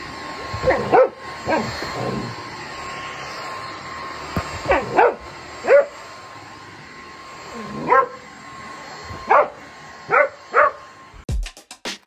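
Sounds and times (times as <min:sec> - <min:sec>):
vacuum cleaner motor humming: 0:00.0 - 0:11.2
dog barking: 0:00.6 - 0:01.7, 0:04.6 - 0:05.9, 0:07.8 - 0:08.2, 0:09.3 - 0:10.8.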